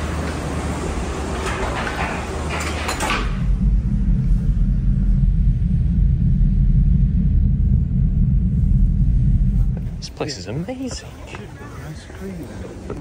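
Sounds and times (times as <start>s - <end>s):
gondola cabin clattering: 0.0s - 3.7s
gondola low rumble: 0.0s - 13.0s.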